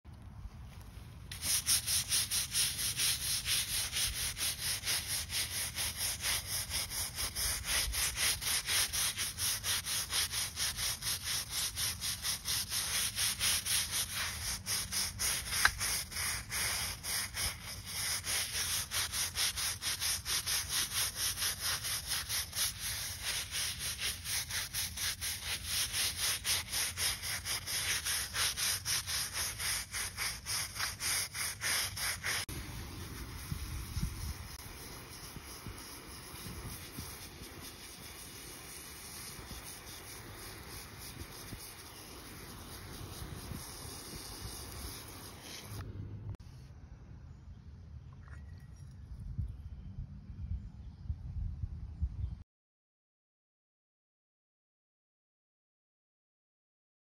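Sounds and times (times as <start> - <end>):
brush scrubbing wet stone: 1.3 - 45.8.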